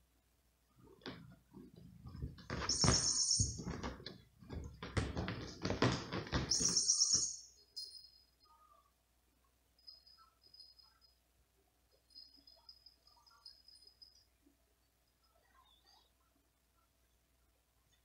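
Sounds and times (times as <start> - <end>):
cat fur and claws on rug: 0.8 - 6.8
high chirp-like squeaks: 2.5 - 3.8, 6.5 - 8.6.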